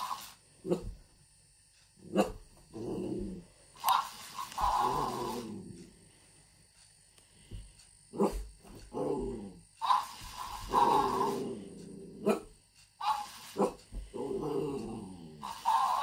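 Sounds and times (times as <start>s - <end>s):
dog growling and barking: 0.0s - 1.0s, 2.0s - 5.9s, 8.1s - 16.0s.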